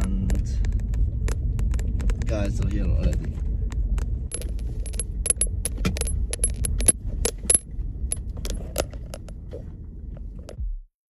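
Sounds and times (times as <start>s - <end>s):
car rolling on gravel: 0.0s - 10.6s
stones crunching and pinging: 4.3s - 9.5s.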